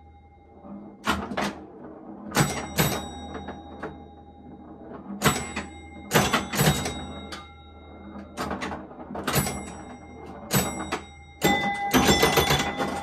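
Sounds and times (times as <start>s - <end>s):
ringing tone: 0.0s - 13.0s
pinball machine clacks: 0.5s - 13.0s.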